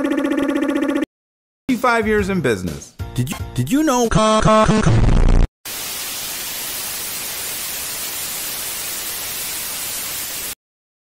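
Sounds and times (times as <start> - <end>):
tv commercial music: 1.7 - 5.4
tv static hiss: 5.7 - 10.6.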